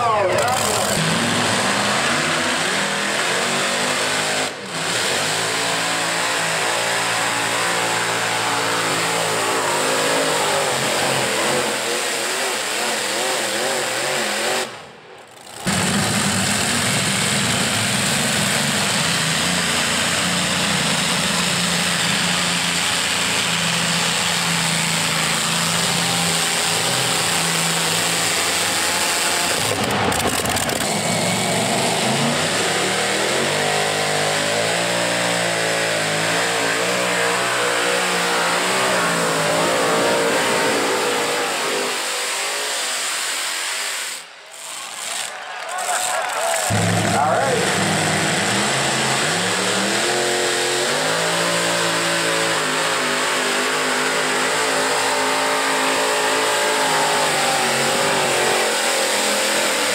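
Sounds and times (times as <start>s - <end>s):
tractor engines revving: 0.0s - 59.9s.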